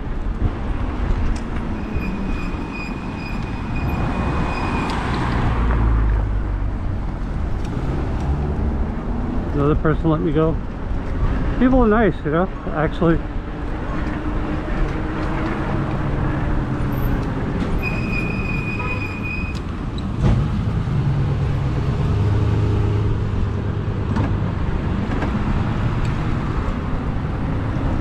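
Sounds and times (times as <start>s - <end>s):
rumble and hum of traffic: 0.0s - 28.0s
high steady squeal: 1.7s - 5.2s, 17.8s - 19.7s.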